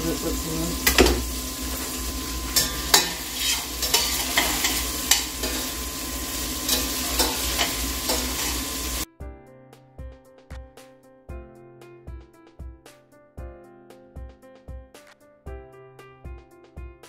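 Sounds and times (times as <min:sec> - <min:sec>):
meat sizzling in a pot: 0:00.0 - 0:09.1
background music: 0:09.2 - 0:17.0.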